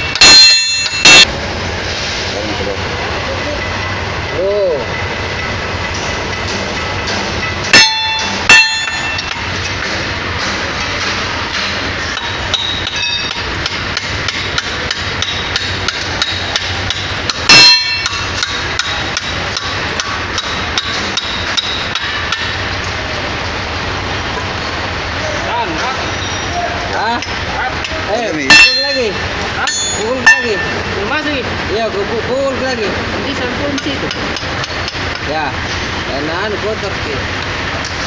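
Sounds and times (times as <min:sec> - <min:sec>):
sledgehammer striking steel: 0:00.0 - 0:01.3, 0:05.9 - 0:22.7, 0:28.5 - 0:31.0.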